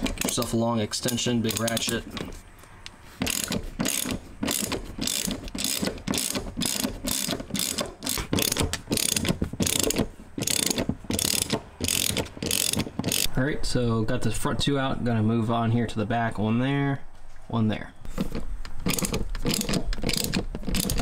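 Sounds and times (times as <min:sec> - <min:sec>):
ratchet wrench clicking: 0:00.0 - 0:02.3, 0:03.2 - 0:13.3, 0:18.8 - 0:21.0.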